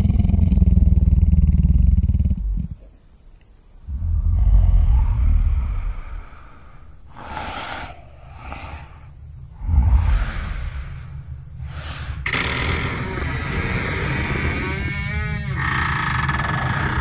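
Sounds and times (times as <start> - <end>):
low growling rumble: 0.0 - 3.0, 3.8 - 17.0
heavy creature breaths: 3.9 - 12.5, 16.4 - 17.0.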